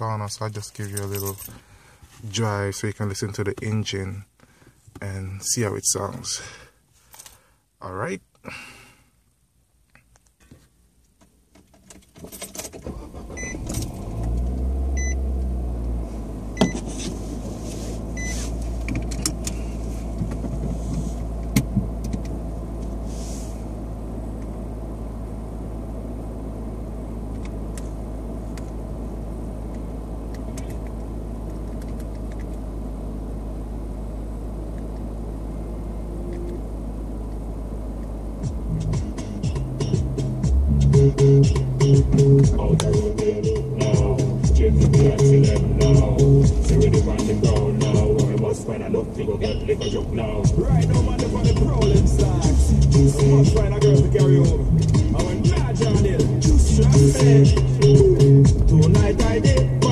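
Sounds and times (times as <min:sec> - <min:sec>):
keys jangling: 0:00.8 - 0:01.6
car engine starting and idling: 0:11.0 - 0:59.9.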